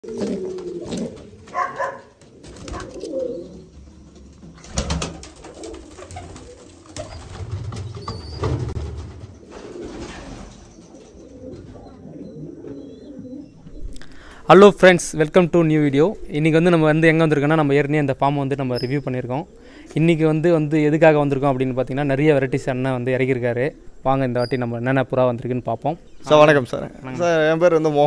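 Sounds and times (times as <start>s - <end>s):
pigeons cooing: 0.0s - 14.4s, 18.2s - 25.0s.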